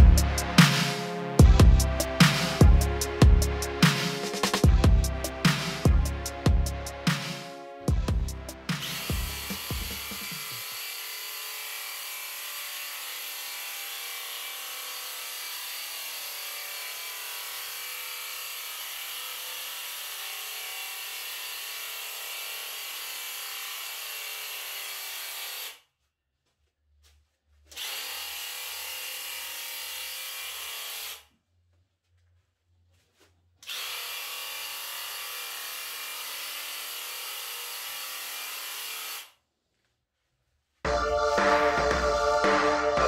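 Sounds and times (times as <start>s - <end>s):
paint sprayer running: 8.6s - 10.8s.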